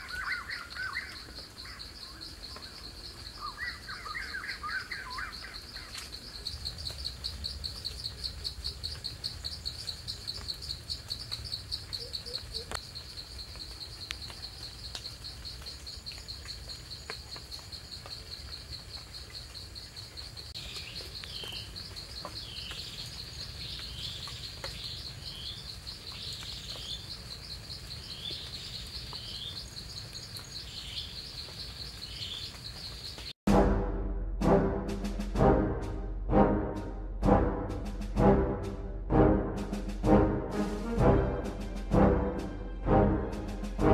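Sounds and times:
insect trilling: 0.0s - 33.3s
bird chirping: 0.0s - 33.4s.

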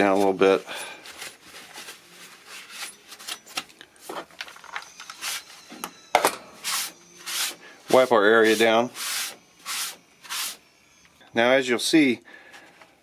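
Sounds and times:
cloth rag rubbing: 6.6s - 10.6s.

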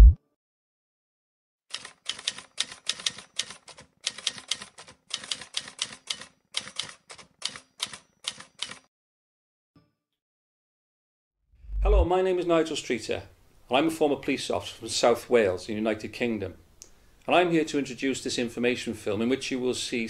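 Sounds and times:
typewriter keys clacking: 1.7s - 8.9s.

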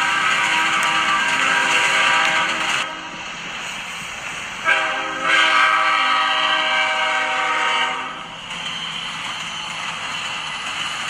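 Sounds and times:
train horn blasts: 0.0s - 3.2s, 4.6s - 8.2s
passing train running noise: 0.0s - 11.0s.

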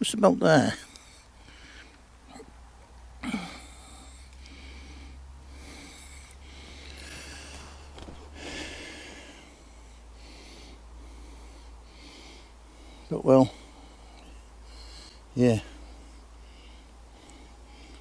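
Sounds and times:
person breathing heavily: 0.8s - 2.5s, 3.2s - 18.0s
low grunt: 2.3s - 2.6s, 3.2s - 4.1s.

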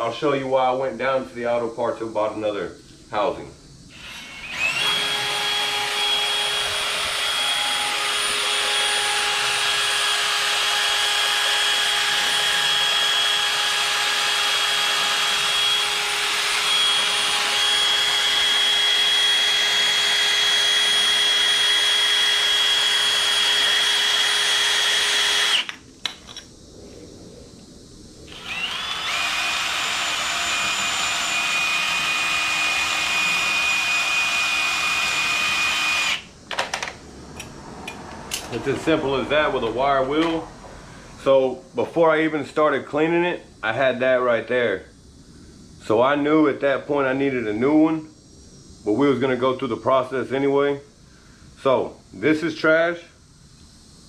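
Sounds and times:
drill with wire wheel whining: 3.9s - 25.8s, 28.3s - 36.3s.

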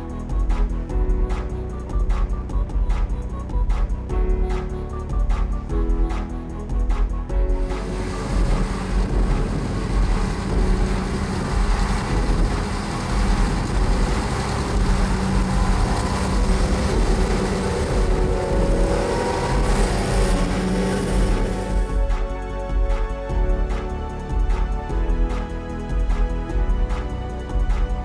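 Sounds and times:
forage harvester chopping grass: 7.9s - 21.9s.

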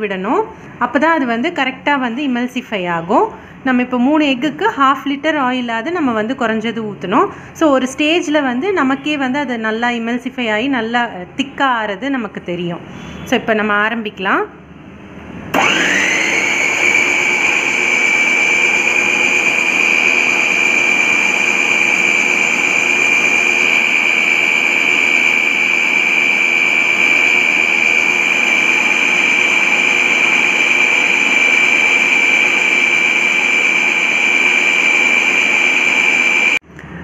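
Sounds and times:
food processor motor whining: 15.5s - 36.6s.

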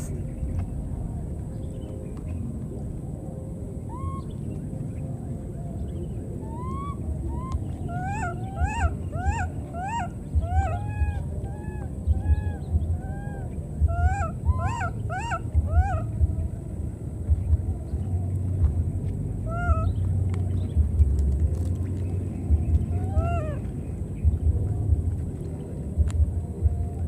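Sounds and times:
low rumble: 0.0s - 27.0s.

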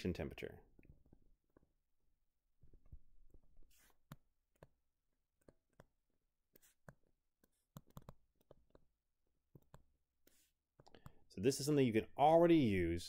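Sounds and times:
stylus tapping on a tablet: 6.6s - 9.9s.

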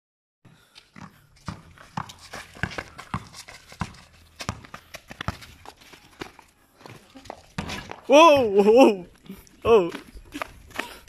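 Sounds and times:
shuffling footsteps: 0.6s - 11.0s
basketball bouncing on concrete: 0.9s - 8.7s.

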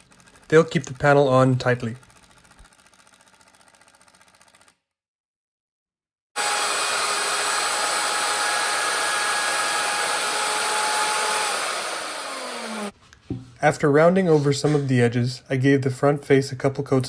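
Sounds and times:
wood router motor whine: 6.4s - 12.9s.

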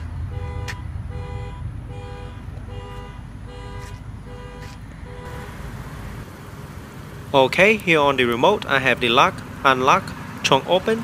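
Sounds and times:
two-tone car horn honks: 0.3s - 5.7s.

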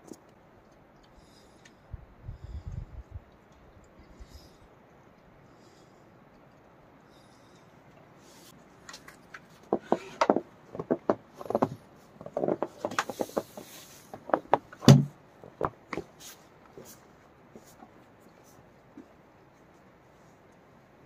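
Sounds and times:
wooden knocks and clatters: 9.0s - 16.1s.

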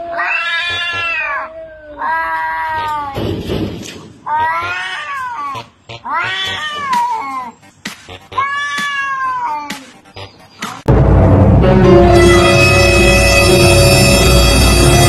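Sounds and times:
cats yowling: 0.0s - 3.2s, 4.2s - 7.6s, 8.3s - 9.9s
loud music: 9.8s - 15.0s.

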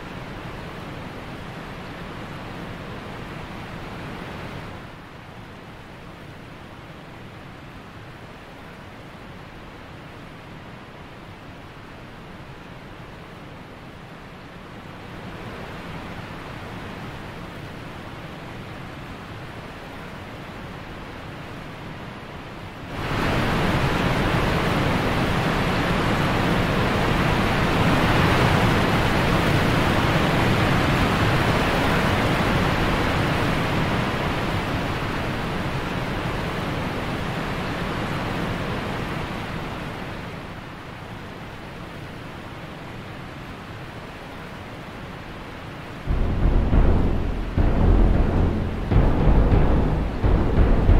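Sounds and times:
rushing noise: 46.1s - 50.9s.

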